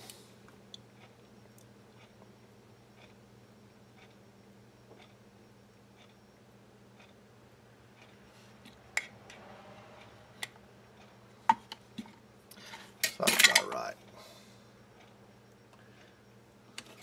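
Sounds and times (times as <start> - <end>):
metal tools clattering: 13.0 - 13.8.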